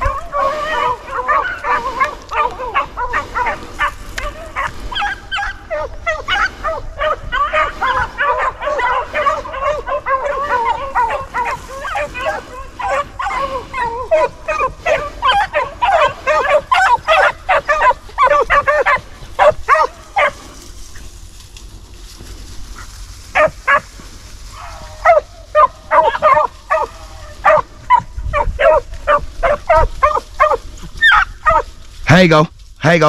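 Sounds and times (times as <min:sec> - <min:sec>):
hound drawn-out bawl: 0:00.0 - 0:20.8
hounds baying and barking: 0:00.0 - 0:32.1.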